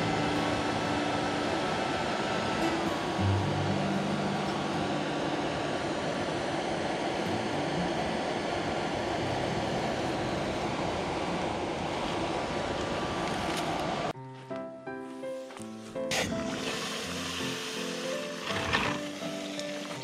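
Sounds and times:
air blowing through charcoal: 15.3 - 20.0.

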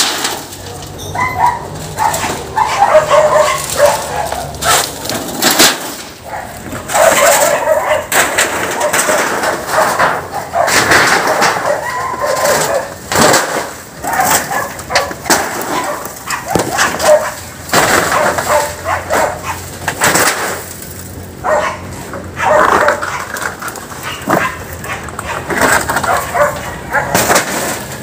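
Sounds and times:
dog barking: 1.1 - 5.0, 6.2 - 13.0, 14.0 - 19.7, 21.4 - 23.3, 24.0 - 27.3.

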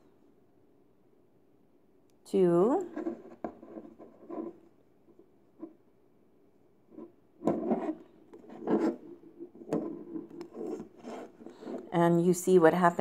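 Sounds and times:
eggshell scraping on counter: 6.9 - 11.9.

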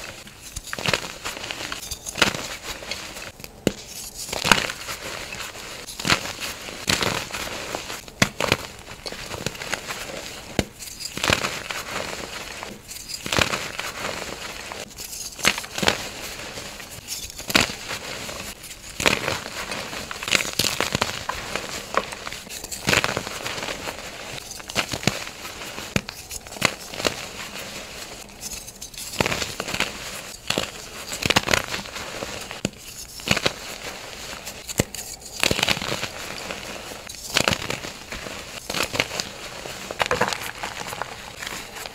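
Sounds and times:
soft powdery crackle: 0.0 - 41.9.

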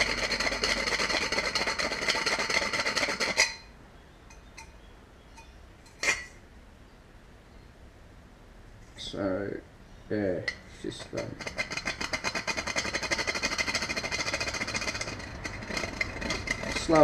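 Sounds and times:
file rasping on brass: 0.0 - 3.6.

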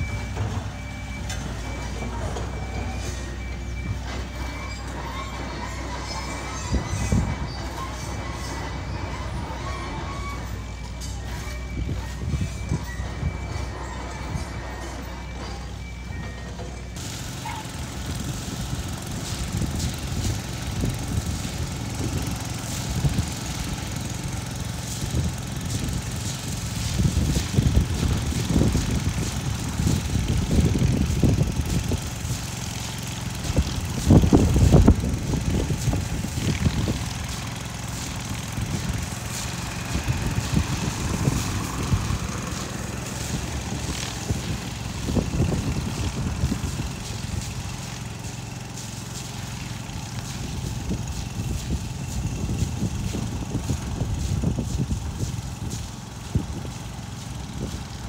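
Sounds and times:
diesel truck engine rumbling: 0.0 - 58.0.

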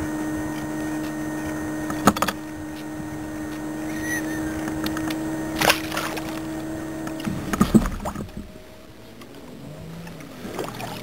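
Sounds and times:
steady low hum: 0.0 - 11.0
sharp knocks and clicks: 1.9 - 2.5.

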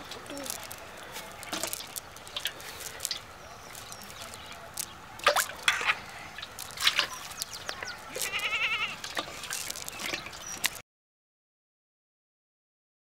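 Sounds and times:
fish flapping in water: 0.4 - 8.4
sharp water splashes: 3.8 - 8.4
quavering animal call: 7.7 - 9.0.

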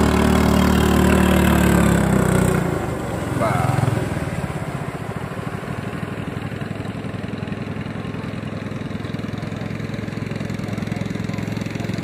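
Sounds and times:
small boat engine running: 0.0 - 12.0.

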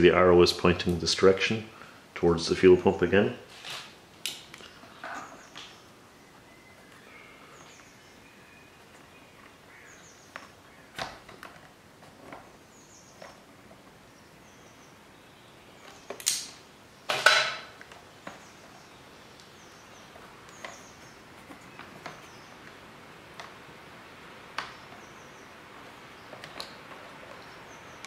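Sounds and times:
rubber hose scraping: 3.5 - 4.0
sharp knocks and handling: 15.8 - 18.8.

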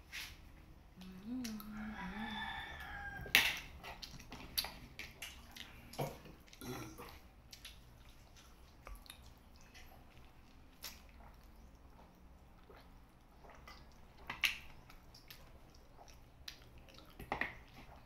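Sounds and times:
lip smacks: 1.0 - 1.8, 3.3 - 18.0
mouth clicks: 1.0 - 1.8
wet chewing: 1.0 - 18.0.

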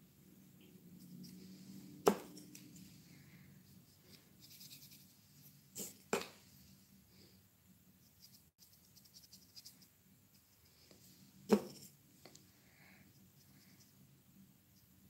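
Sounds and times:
faint scratching of craft work: 0.5 - 14.1.

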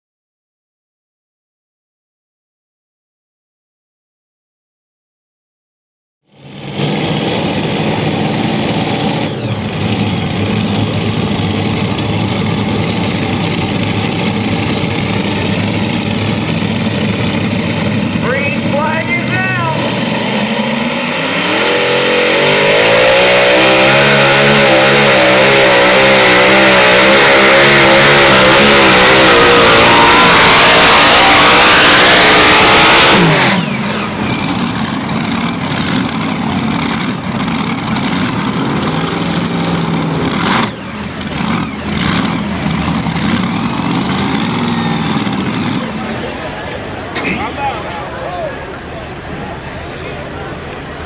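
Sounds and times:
low rough engine running: 6.2 - 21.5, 28.0 - 51.0
tractor engines at full throttle: 6.3 - 51.0.

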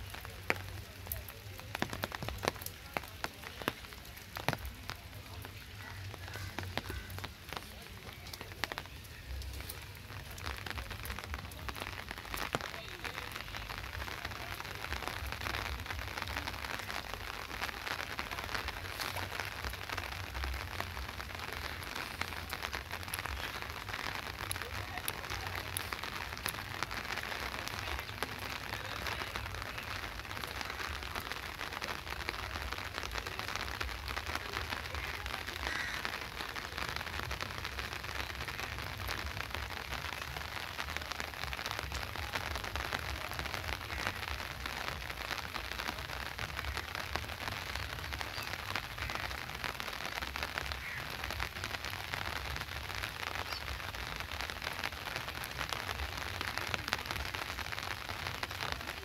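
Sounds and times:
rain patter: 0.0 - 59.0.

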